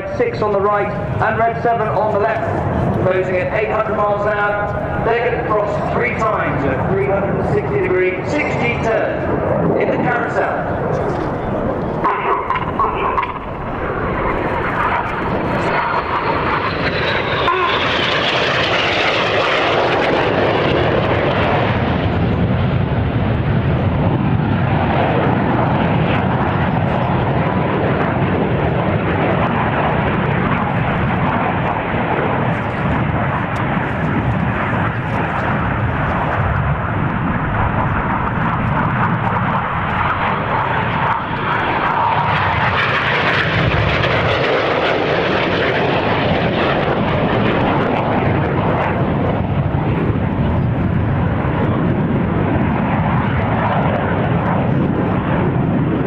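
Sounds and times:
jet engine rush: 0.0s - 56.0s
high whine falling in pitch: 9.8s - 18.3s.

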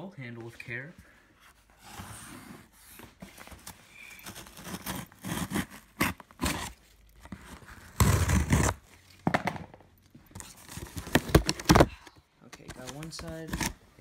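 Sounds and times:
scissors cutting packing tape: 4.3s - 6.8s.

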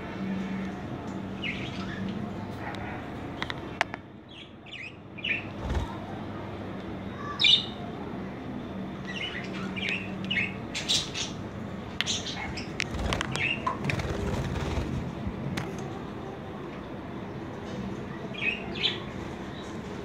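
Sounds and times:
wings flapping and scrabbling: 5.6s - 6.1s, 12.7s - 15.3s.

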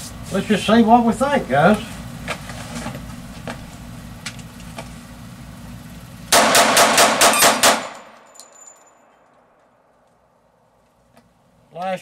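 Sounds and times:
pistol shots: 6.3s - 8.2s.

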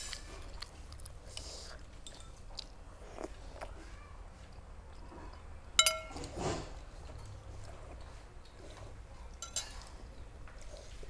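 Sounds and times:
slurping and chewing: 0.0s - 3.9s, 6.2s - 11.0s
spoons clicking against bowls: 5.8s - 6.2s, 9.4s - 9.9s.

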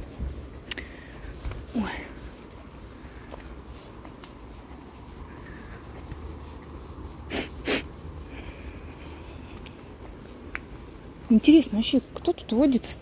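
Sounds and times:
breathy puffs of breath: 5.2s - 9.6s.

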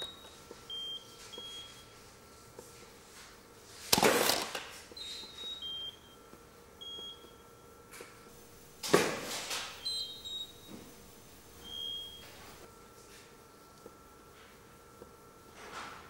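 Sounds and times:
camera shutter and flashes firing: 3.9s - 4.6s
flash ready beeps: 8.4s - 12.6s.

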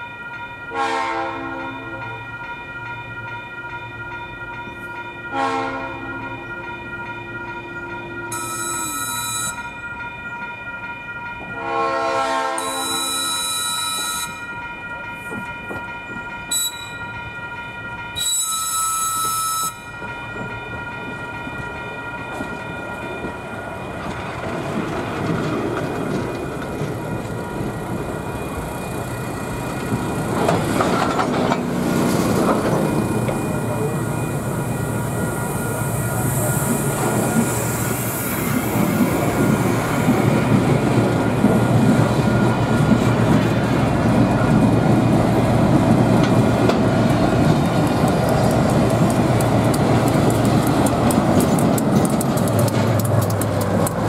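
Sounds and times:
high ringing crossing bell: 0.0s - 24.8s, 26.5s - 48.2s
train wheels rumbling: 0.0s - 54.0s
train horn blasts: 0.7s - 2.1s, 5.3s - 6.2s, 8.3s - 9.7s, 11.5s - 14.4s, 16.5s - 17.0s, 18.2s - 20.0s.

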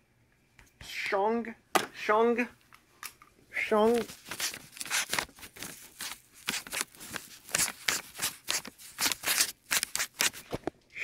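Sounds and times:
pen scratching on paper: 6.4s - 10.4s.

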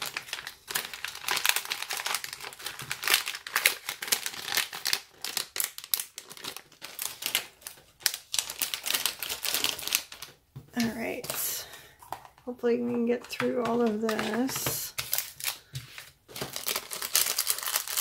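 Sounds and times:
plastic bags crinkling: 0.0s - 18.0s.

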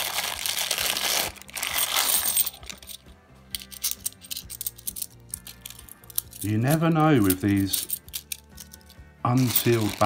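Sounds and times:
plastic bag rustling: 0.0s - 2.8s, 9.4s - 10.0s
coins jingling: 1.5s - 10.0s
coins clicking together: 1.6s - 10.0s.

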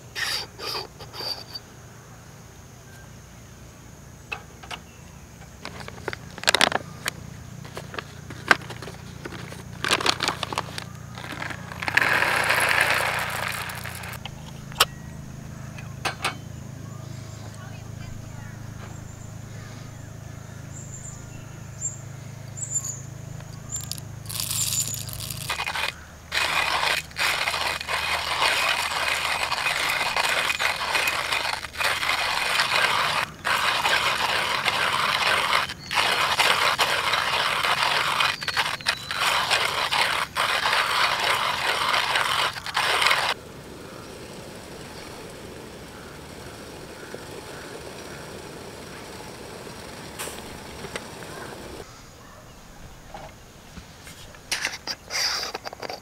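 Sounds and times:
coffee grinder crunching beans: 5.6s - 14.8s, 23.5s - 51.8s.

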